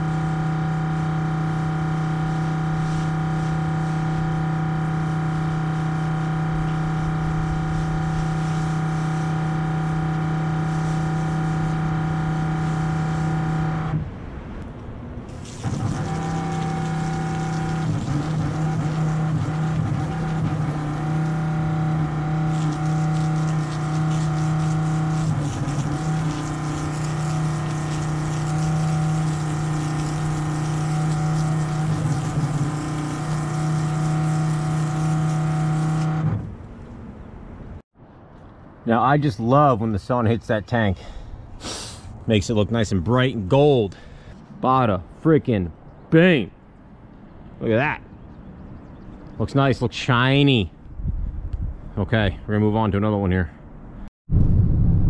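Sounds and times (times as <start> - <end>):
water spraying onto concrete: 0.0 - 13.7, 15.3 - 36.4
pump motor humming: 0.0 - 14.0, 15.3 - 36.8.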